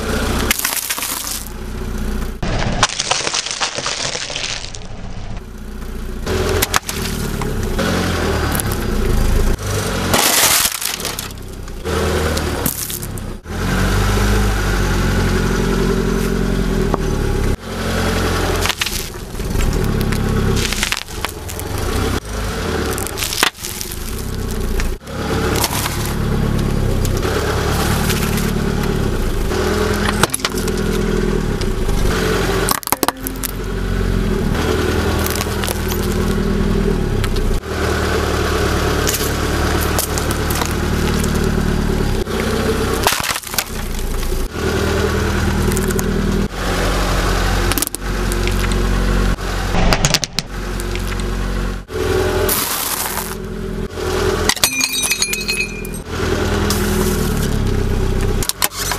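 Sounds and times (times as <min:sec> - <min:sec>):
cracking and crunching: 0:00.0 - 0:05.6, 0:06.4 - 0:07.8, 0:08.4 - 0:13.3, 0:18.4 - 0:37.6, 0:39.0 - 0:44.5, 0:45.4 - 0:46.1, 0:47.7 - 0:48.9, 0:52.5 - 0:53.4
car engine running: 0:00.0 - 0:58.9
tyre crushing objects: 0:00.4 - 0:01.6, 0:02.4 - 0:05.0, 0:06.4 - 0:07.6, 0:09.7 - 0:11.7, 0:12.3 - 0:13.2, 0:18.2 - 0:33.7, 0:34.6 - 0:36.4, 0:39.0 - 0:41.6, 0:43.0 - 0:44.4, 0:52.5 - 0:53.4.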